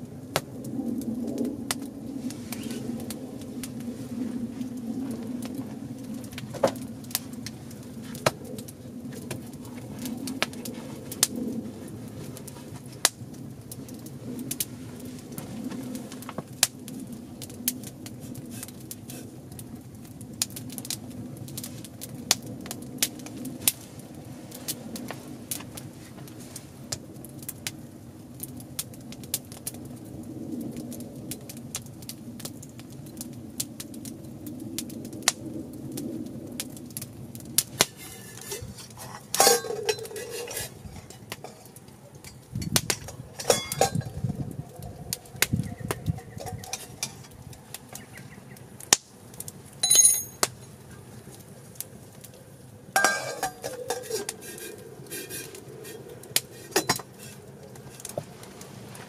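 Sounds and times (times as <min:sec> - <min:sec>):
campfire crackling and snapping: 0:00.0 - 0:59.0
metal pot lid clinking: 0:38.0 - 0:41.7, 0:43.4 - 0:44.1, 0:46.4 - 0:47.3, 0:53.0 - 0:55.5, 0:56.6 - 0:57.4.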